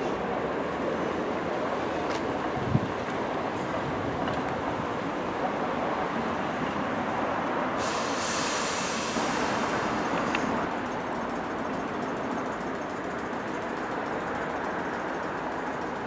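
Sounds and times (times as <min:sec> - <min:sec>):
train wheels rumbling on rails: 0:00.0 - 0:16.0
hiss: 0:07.7 - 0:10.7.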